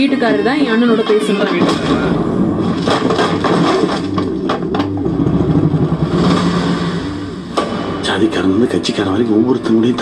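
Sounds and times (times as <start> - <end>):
sharp hits: 1.6 - 9.0
low rumbling drone: 1.7 - 10.0.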